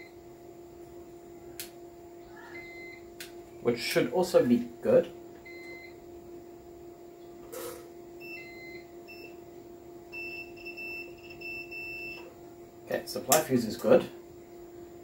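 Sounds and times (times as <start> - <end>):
steady low hum: 0.0 - 15.0
multimeter beeps: 2.6 - 3.0, 5.4 - 6.0, 8.2 - 9.4, 10.1 - 12.3.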